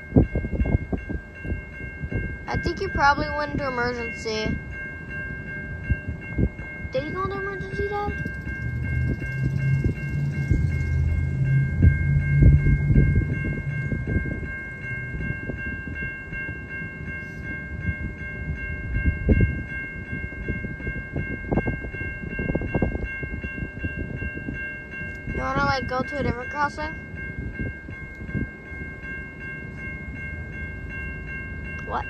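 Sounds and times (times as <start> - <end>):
crossing warning bell ringing: 0.0 - 32.0
low rumble with thumps: 8.1 - 14.5.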